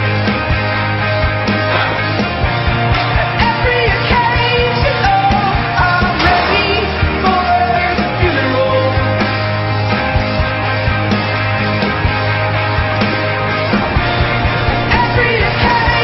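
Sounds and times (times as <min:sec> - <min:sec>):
guitars: 0:00.0 - 0:16.0
drum beat: 0:12.9 - 0:16.0
person singing: 0:14.8 - 0:16.0.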